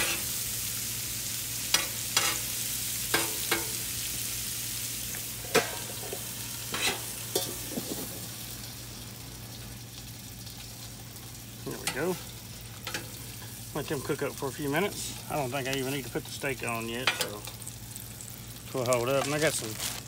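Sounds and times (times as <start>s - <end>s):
vegetables sizzling on griddle: 0.0s - 20.0s
metal spatula scraping plate: 6.0s - 7.6s.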